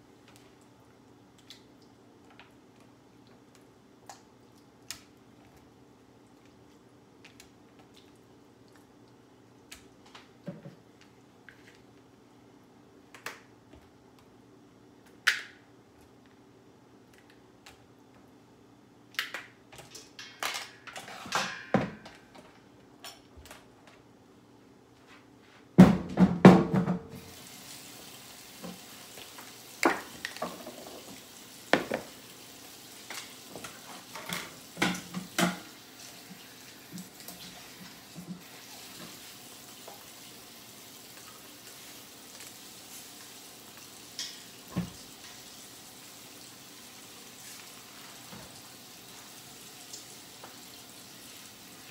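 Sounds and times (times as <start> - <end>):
dishes clattering in sink: 19.9 - 22.4, 29.9 - 32.1, 33.1 - 35.8, 44.1 - 45.4.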